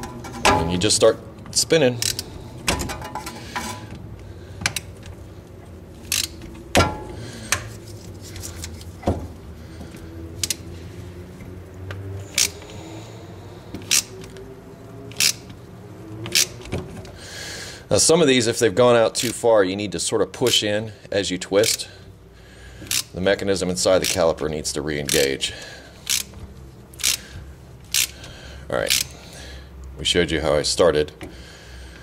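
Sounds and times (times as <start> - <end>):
metallic ratchet clicks: 1.9 - 2.4, 6.0 - 6.4, 12.2 - 12.6, 13.8 - 14.3, 15.1 - 15.5, 16.3 - 16.6, 21.6 - 21.9, 22.8 - 23.2, 23.8 - 24.4, 26.0 - 26.4, 27.0 - 27.3, 27.9 - 29.2.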